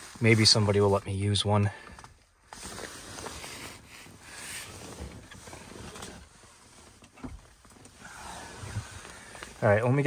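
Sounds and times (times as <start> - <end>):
faint rustling and handling noise: 0.0 - 10.0.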